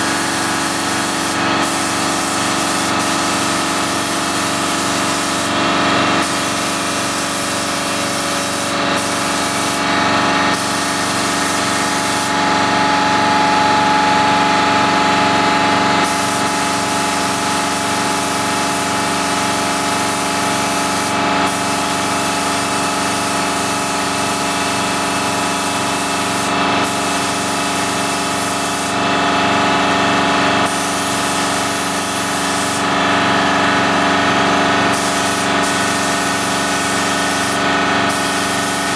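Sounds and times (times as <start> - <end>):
spray gun hissing: 0.0 - 5.6, 6.2 - 12.4, 16.0 - 29.0, 30.6 - 32.9, 34.9 - 38.9
steady mechanical hum: 2.8 - 20.3.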